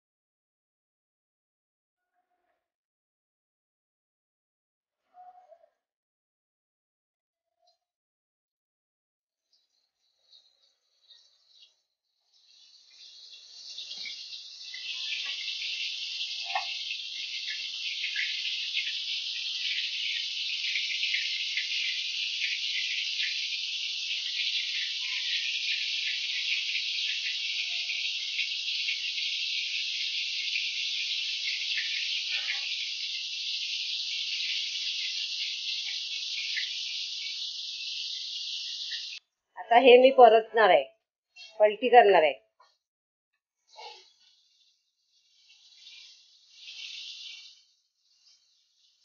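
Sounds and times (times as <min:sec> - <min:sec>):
fish sizzling in hot oil: 0:09.5 - 0:39.3, 0:43.6 - 0:49.0
oil crackles and pops: 0:12.2 - 0:39.2, 0:43.8 - 0:49.0.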